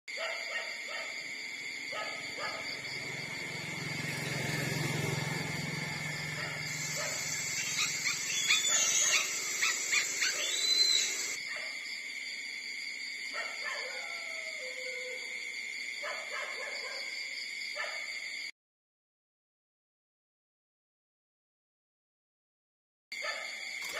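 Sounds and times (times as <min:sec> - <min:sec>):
high-pitched background hum: 0:02.4 - 0:11.4
puppies squeaking and whimpering: 0:07.0 - 0:11.4.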